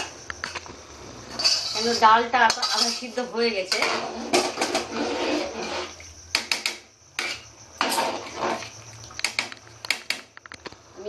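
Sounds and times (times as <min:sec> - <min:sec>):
ladle clinking: 0:01.3 - 0:04.6
metal ladle scraping pot: 0:01.3 - 0:09.5.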